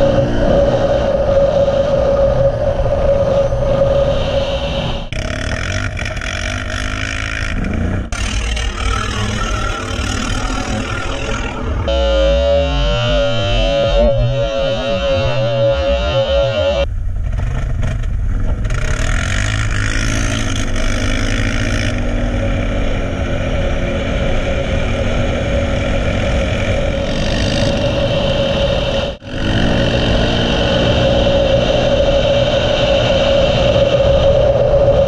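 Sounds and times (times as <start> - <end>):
wind noise on microphone: 0.0 - 35.0
quad bike engine running: 5.1 - 31.9.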